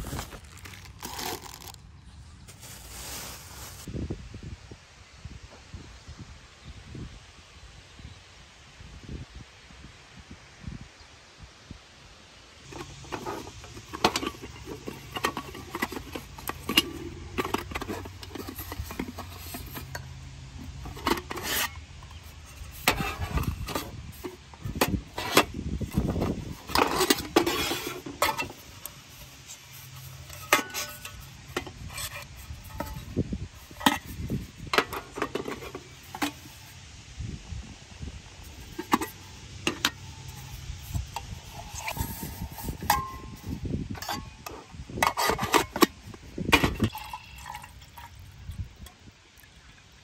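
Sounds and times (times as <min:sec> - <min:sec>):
fabric rustling and sliding: 0:02.5 - 0:03.9
metal pots clinking: 0:12.7 - 0:36.7, 0:41.6 - 0:48.3.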